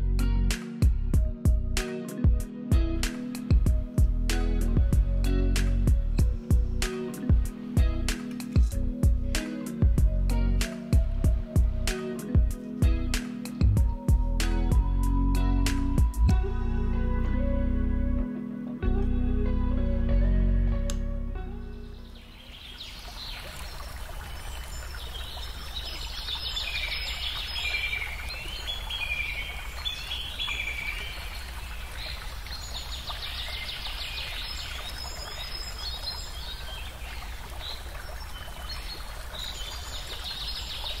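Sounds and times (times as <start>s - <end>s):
birds chirping and trilling: 21.7s - 41.0s.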